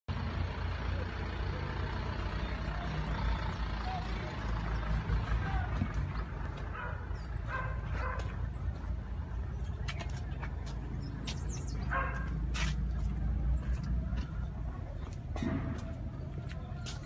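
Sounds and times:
pump engine rumbling: 0.1s - 17.0s
dog barking: 6.7s - 8.4s, 11.8s - 12.4s.

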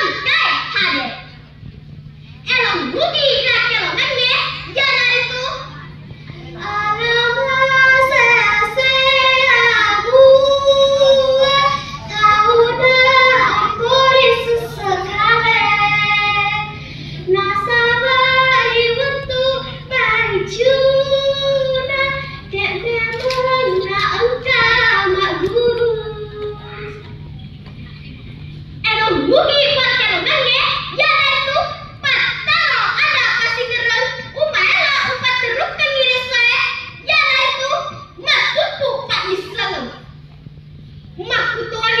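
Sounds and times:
steady low hum: 0.0s - 42.0s
girl singing: 6.5s - 27.1s.

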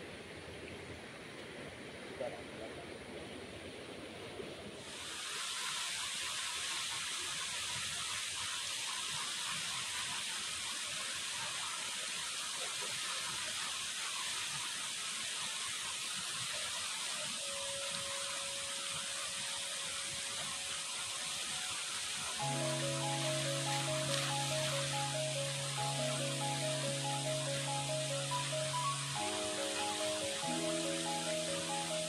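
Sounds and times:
river rushing over stones: 3.0s - 32.0s
faint steady tone: 17.2s - 32.0s.

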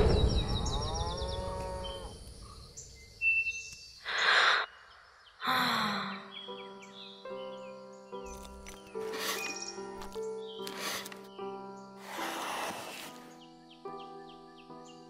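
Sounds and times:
deep breath and long sigh: 4.0s - 4.8s, 5.4s - 6.3s.

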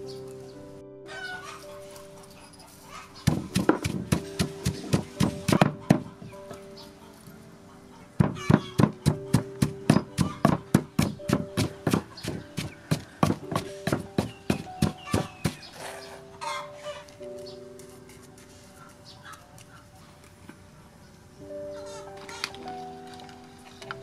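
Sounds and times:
pestle pounding in wooden mortar: 3.2s - 6.3s, 8.2s - 15.7s.

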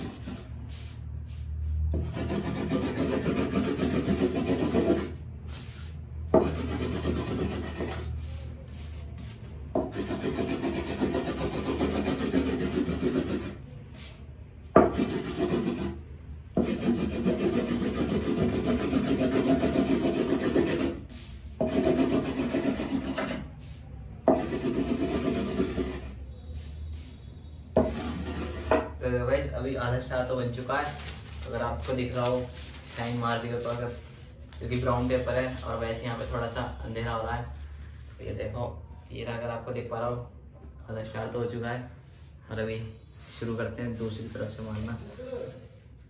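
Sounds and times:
burnisher scratching on paper: 0.0s - 14.2s, 14.8s - 16.0s, 16.6s - 27.2s, 27.8s - 28.8s, 30.6s - 36.8s, 42.9s - 46.0s.

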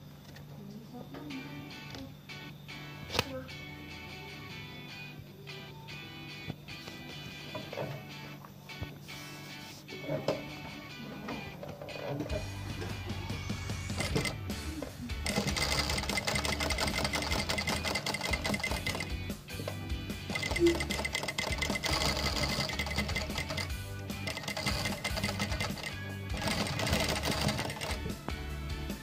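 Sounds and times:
sewing machine running: 13.4s - 14.6s, 15.2s - 28.3s.

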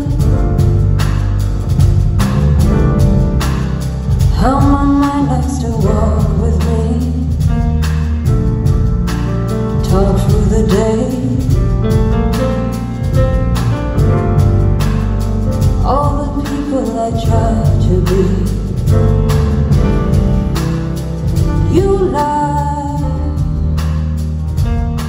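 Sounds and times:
live band playing: 0.0s - 25.0s
woman singing: 4.3s - 7.5s, 9.8s - 11.6s, 15.8s - 18.8s, 21.6s - 23.7s.

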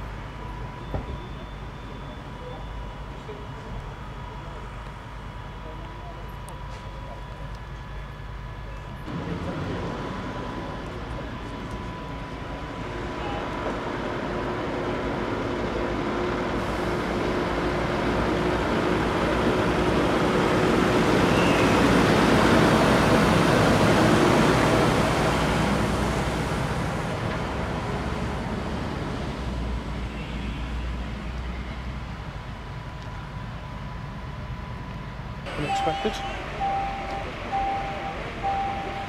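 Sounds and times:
fire engine diesel engine: 0.0s - 39.0s.

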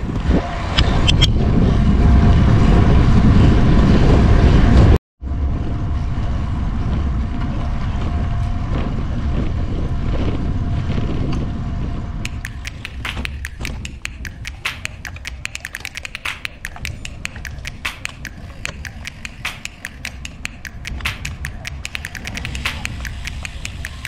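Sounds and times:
wind rushing over microphone: 0.0s - 14.3s.

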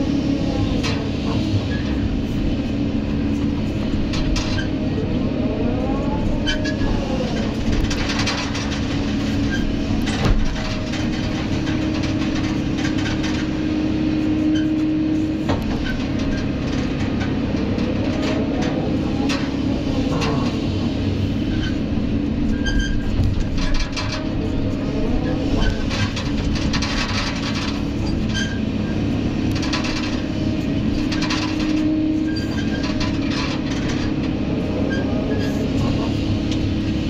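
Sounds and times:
diesel engine running: 0.0s - 37.0s
hydraulic whine: 0.0s - 37.0s.

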